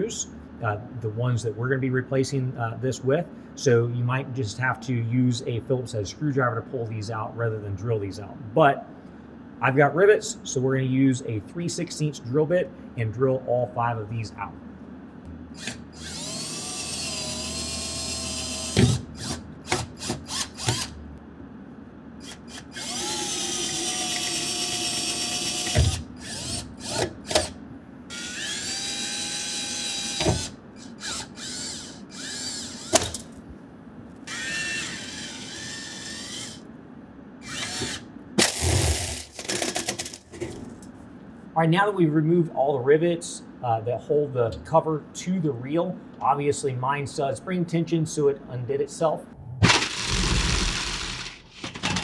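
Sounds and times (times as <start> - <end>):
cordless drill whining: 15.6 - 20.9, 22.2 - 27.5, 28.1 - 33.2, 34.3 - 36.6, 37.4 - 39.6, 49.8 - 52.0.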